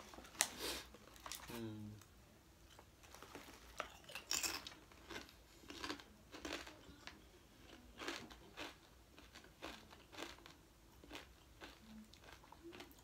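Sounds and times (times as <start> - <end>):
chip bag crinkling: 3.0 - 7.2
potato chips crunching: 3.0 - 13.0.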